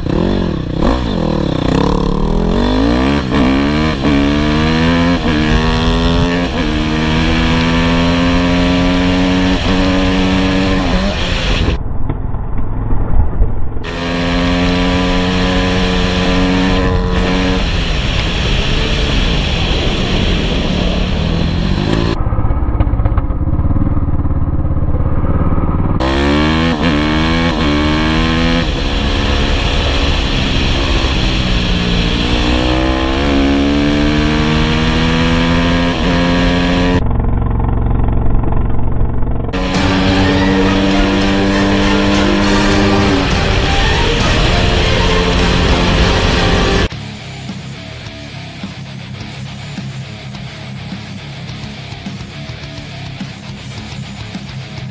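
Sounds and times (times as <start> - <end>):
dirt bike engine revving: 0.0 - 11.8, 13.8 - 22.2, 25.1 - 54.8
wind noise: 8.8 - 14.0, 15.1 - 24.1.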